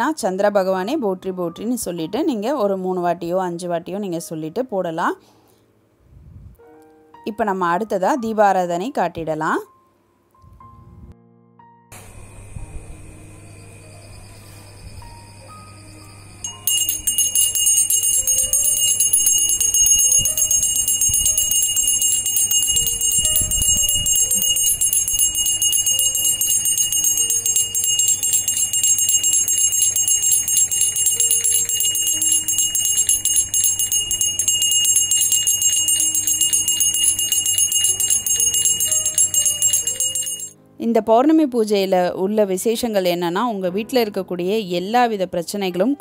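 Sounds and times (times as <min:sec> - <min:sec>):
faint music: 0:00.0 - 0:11.3, 0:11.9 - 0:46.0
hand bell ringing rapidly: 0:16.4 - 0:40.6.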